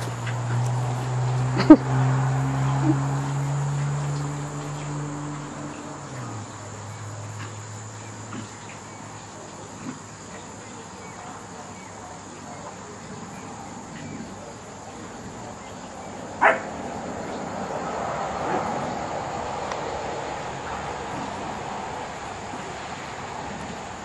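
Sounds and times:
low hum: 0:00.0 - 0:07.9
insects chirring: 0:00.0 - 0:24.0.

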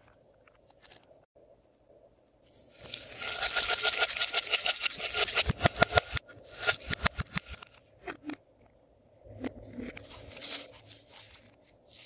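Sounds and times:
glitter shaken from plastic container: 0:02.8 - 0:07.6.

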